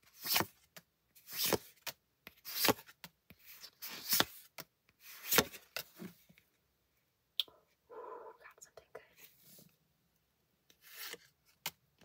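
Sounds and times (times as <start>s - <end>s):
cards sliding over cards: 0.2s - 0.5s, 1.3s - 6.2s, 10.7s - 11.8s.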